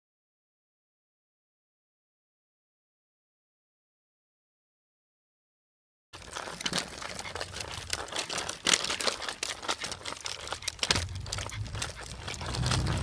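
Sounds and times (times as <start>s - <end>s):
dog wheelchair wheels rolling: 6.2s - 13.0s
low rumble: 10.9s - 13.0s.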